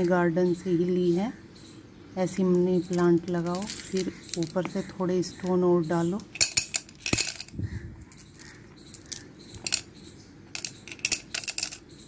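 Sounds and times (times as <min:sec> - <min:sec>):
pebbles clinking in glass jar: 0:02.8 - 0:04.8, 0:06.3 - 0:09.9, 0:10.5 - 0:12.0.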